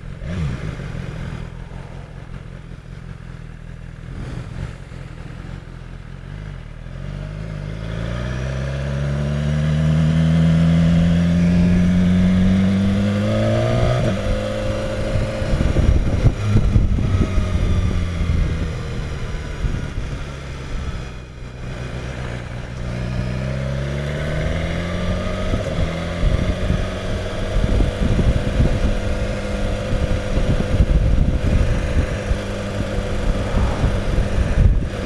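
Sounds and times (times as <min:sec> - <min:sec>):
motorcycle engine accelerating: 0:00.0 - 0:35.0
wind rumble on microphone: 0:11.0 - 0:21.0, 0:24.3 - 0:35.0.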